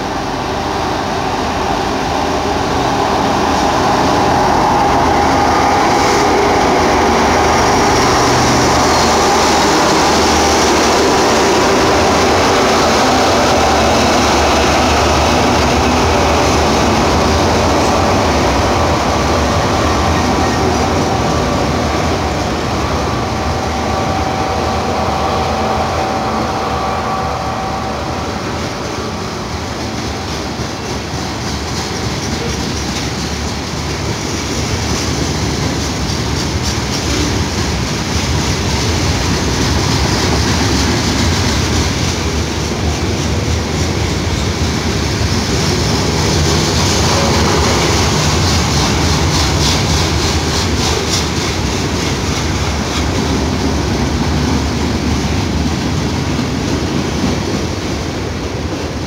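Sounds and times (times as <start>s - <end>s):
freight train wheels rumbling: 0.0s - 59.0s
wheels clacking over rail joints: 29.4s - 59.0s.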